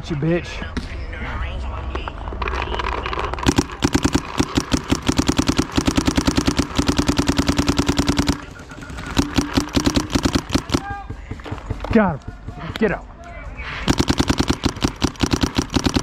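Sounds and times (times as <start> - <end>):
paintball marker rapid firing: 3.4 - 12.4, 13.8 - 16.0.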